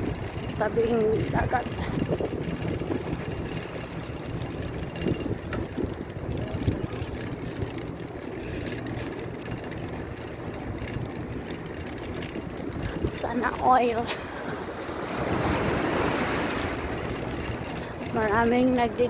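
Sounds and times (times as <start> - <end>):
wind rumbling on microphone: 0.0 - 9.6, 10.4 - 19.0.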